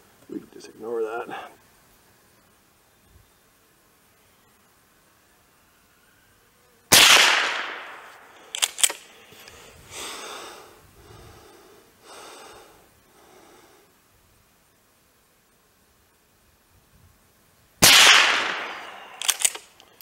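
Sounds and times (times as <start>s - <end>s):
rifle shot with echo: 6.9s - 9.0s, 17.8s - 19.6s
rifle pump action clicks: 8.4s - 9.1s, 19.1s - 20.0s.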